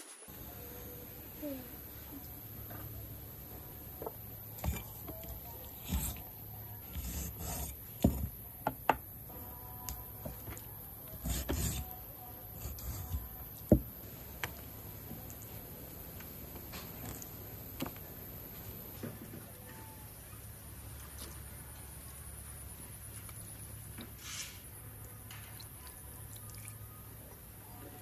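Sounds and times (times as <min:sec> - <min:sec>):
knife cutting meat on wooden board: 0:04.6 - 0:08.4, 0:11.1 - 0:11.9, 0:12.6 - 0:13.8.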